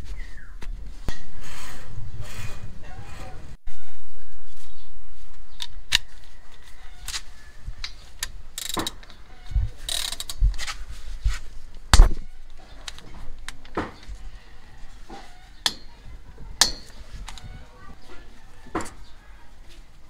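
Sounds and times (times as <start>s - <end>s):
ratchet wrench clicking: 8.6s - 9.0s, 9.9s - 10.4s
tool knocks: 15.1s - 16.0s, 16.6s - 17.0s.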